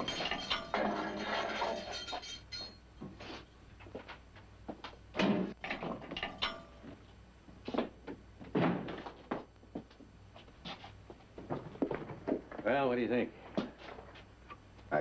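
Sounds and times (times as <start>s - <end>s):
metallic ring: 0.0s - 2.9s, 6.2s - 6.8s.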